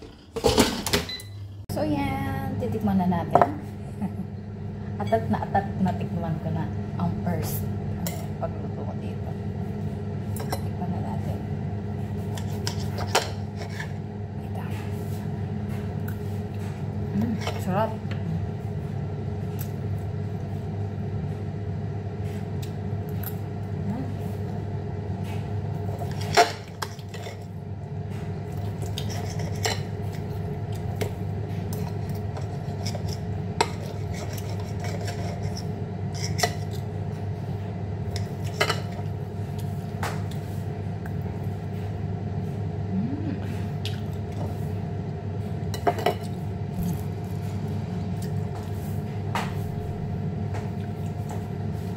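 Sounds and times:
steady machine hum: 0:00.0 - 0:51.9
knife and fork scraping plate: 0:12.3 - 0:14.0, 0:28.8 - 0:29.9, 0:31.8 - 0:36.8.

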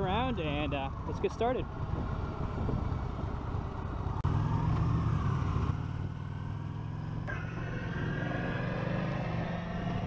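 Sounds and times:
wind rumble on microphone: 0:01.6 - 0:03.6.

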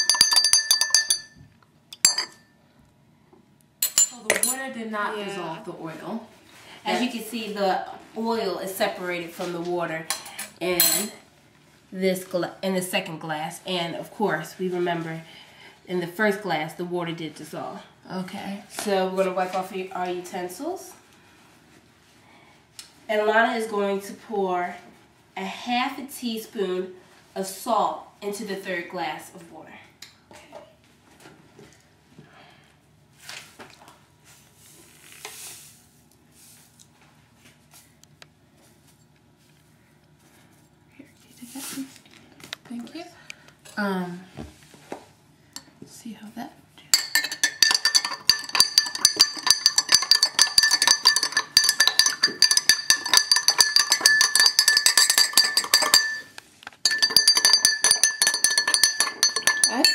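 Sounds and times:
spoon clinking against glass: 0:00.0 - 0:02.5, 0:47.0 - 0:59.9.

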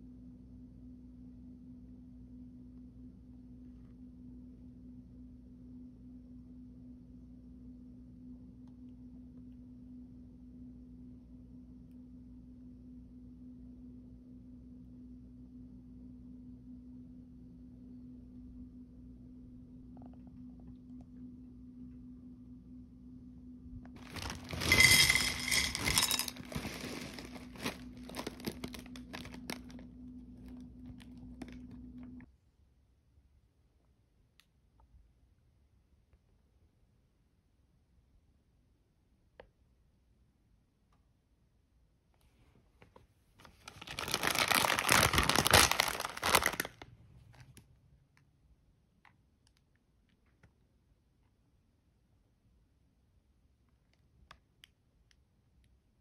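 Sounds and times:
steady low hum: 0:00.0 - 0:32.3
cereal pieces landing on plate: 0:24.0 - 0:29.6
plastic pouch crinkling: 0:24.0 - 0:29.9, 0:43.4 - 0:46.9.

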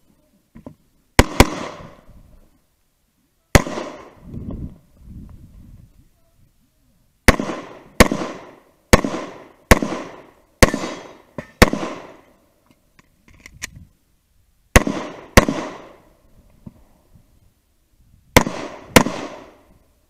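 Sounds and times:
pistol shots: 0:01.2 - 0:02.0, 0:03.5 - 0:04.2, 0:07.3 - 0:12.2, 0:14.8 - 0:16.0, 0:18.4 - 0:19.6.

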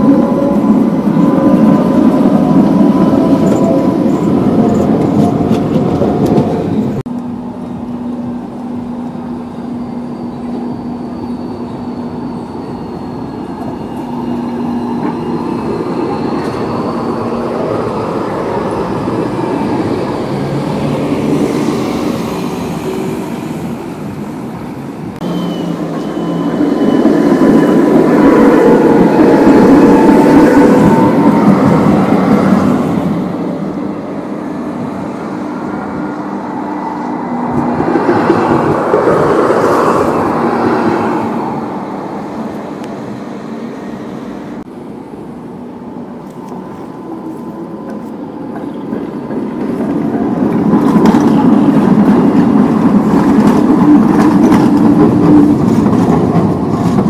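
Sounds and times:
high tones from tram: 0:00.0 - 0:57.0
tram rumbling past: 0:00.0 - 0:57.0.

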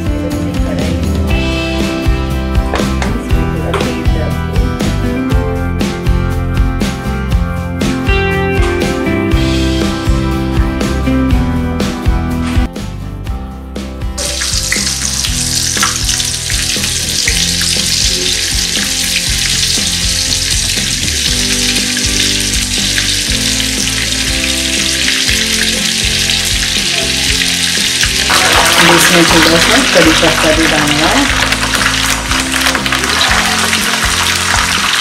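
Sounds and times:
meat deep-frying in hot oil: 0:14.2 - 0:35.0.

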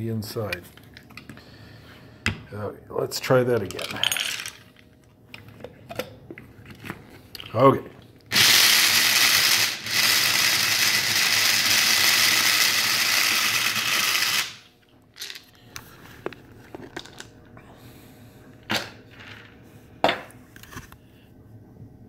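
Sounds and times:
coffee grinder grinding corn: 0:08.3 - 0:15.4.

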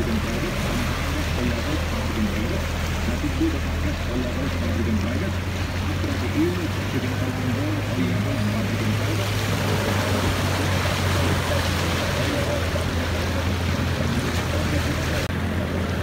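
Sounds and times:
floodwater rushing and splashing: 0:00.0 - 0:16.0
low engine drone: 0:00.0 - 0:16.0.

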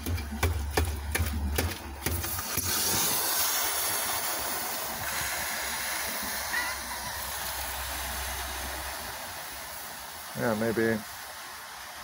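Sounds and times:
sharp knocks: 0:00.0 - 0:02.7
battery venting hiss: 0:02.2 - 0:12.0.

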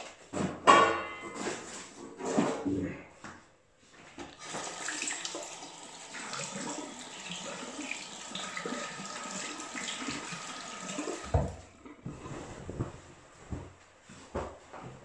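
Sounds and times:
tap water running into sink: 0:04.3 - 0:11.7.

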